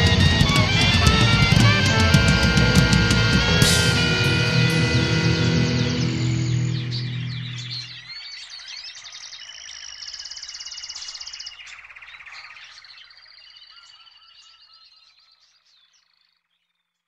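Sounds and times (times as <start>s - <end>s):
distorted rock guitar: 0.0s - 8.0s
birds chirping and trilling: 3.2s - 16.3s.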